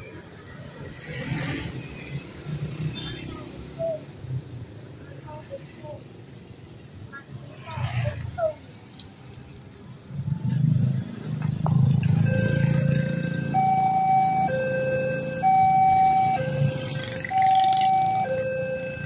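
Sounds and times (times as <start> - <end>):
motorcycles and cars passing: 0.0 - 19.0
level crossing warning siren: 12.1 - 19.0.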